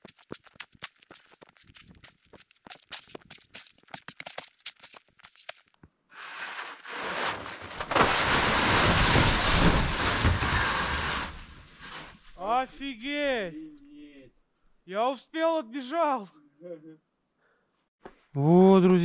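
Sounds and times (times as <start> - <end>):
snow shovel scraping snow: 6.1 - 12.5
snow sliding off metal roof: 6.1 - 13.3.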